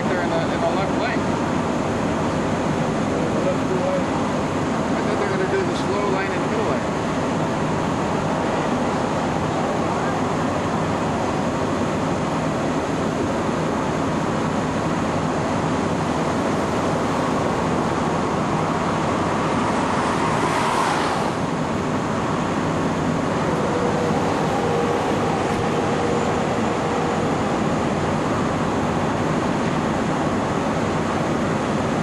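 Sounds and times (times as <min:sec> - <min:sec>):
highway traffic noise: 0:00.0 - 0:32.0
vehicle passing close: 0:16.2 - 0:30.4.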